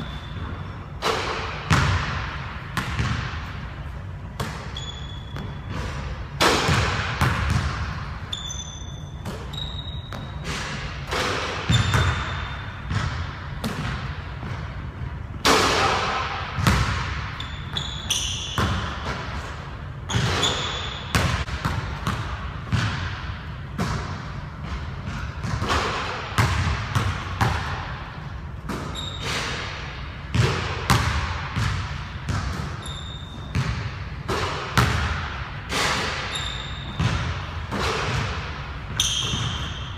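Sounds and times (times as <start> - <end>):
sneaker squeaks: 0.0 - 1.8, 4.2 - 6.4, 7.2 - 14.7, 16.6 - 22.2, 28.6 - 29.8, 32.3 - 34.0, 35.8 - 39.9
ball hitting rim and backboard: 0.0 - 39.9.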